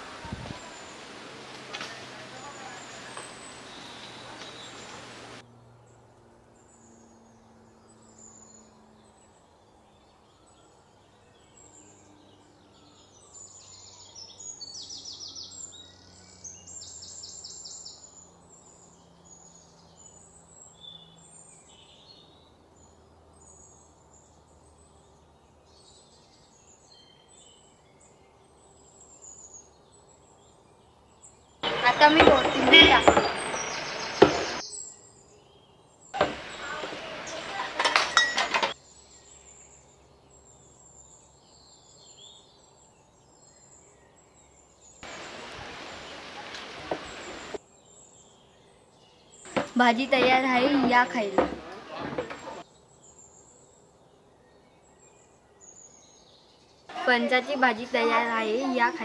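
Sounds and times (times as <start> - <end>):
birds chirping: 0.0 - 5.4, 8.0 - 59.0
faint background hiss: 0.0 - 5.4, 9.4 - 59.0
bird trilling: 31.6 - 34.6.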